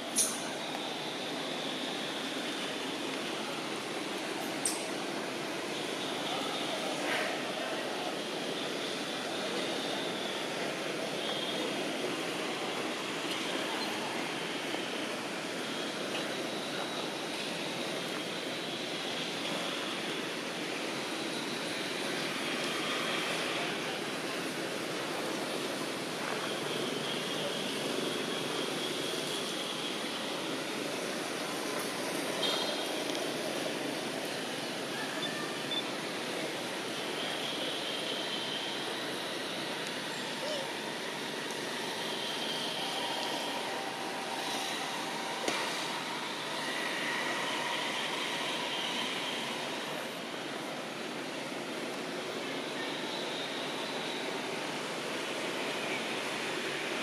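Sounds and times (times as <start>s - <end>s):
faint high steady tones: 0.0s - 56.4s
outdoor background rush: 0.0s - 57.0s.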